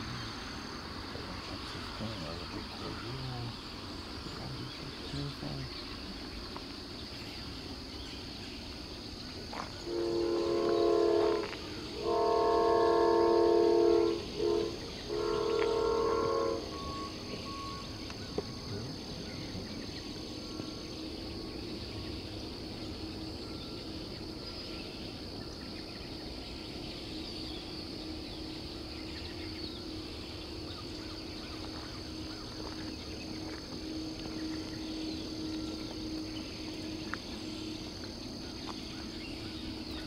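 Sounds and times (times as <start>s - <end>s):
train rumbling: 0.0s - 40.0s
locomotive air horn blasts: 9.8s - 18.0s.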